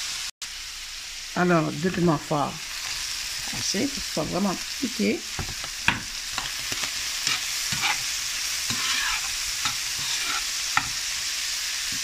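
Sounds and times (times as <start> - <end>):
meat sizzling in a frying pan: 0.0 - 12.0
utensil scraping a pan: 5.4 - 11.2.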